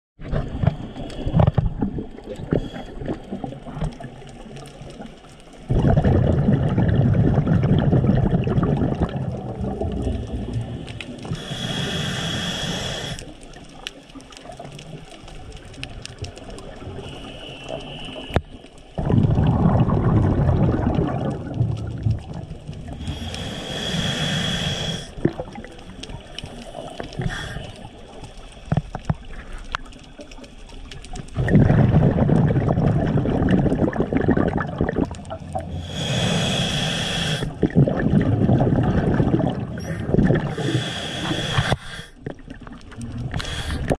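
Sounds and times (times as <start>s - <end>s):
exhaled bubbles rushing underwater: 0.2s - 43.9s
regulator inhalation hiss: 10.6s - 13.3s, 17.0s - 18.4s, 23.0s - 25.2s, 35.7s - 37.6s, 39.8s - 42.2s, 43.4s - 43.9s
faint clicks: 13.2s - 19.0s.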